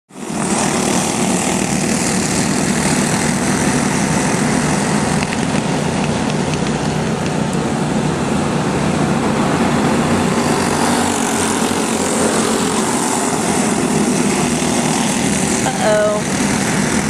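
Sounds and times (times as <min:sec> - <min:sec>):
go-kart engines droning: 0:00.1 - 0:17.0.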